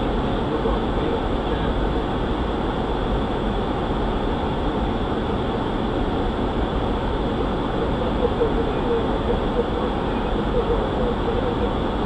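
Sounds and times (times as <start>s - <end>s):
cockpit air rush and hum: 0.0s - 12.0s.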